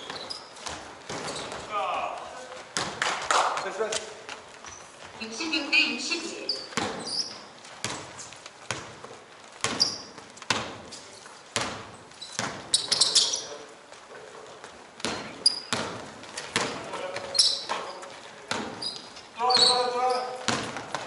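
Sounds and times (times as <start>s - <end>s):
basketball bouncing on court floor: 0.0s - 1.7s, 2.6s - 3.0s, 6.6s - 13.4s, 14.6s - 21.0s
sneakers squeaking on court: 0.0s - 1.7s, 2.6s - 21.0s.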